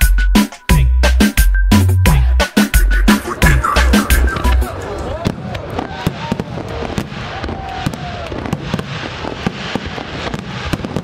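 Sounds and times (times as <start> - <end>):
fireworks cracking and popping: 3.9 - 11.0.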